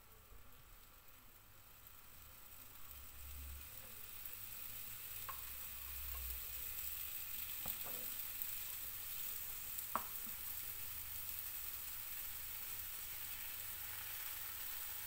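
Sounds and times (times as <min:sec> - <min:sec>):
waffle batter sizzling: 0:00.0 - 0:15.0.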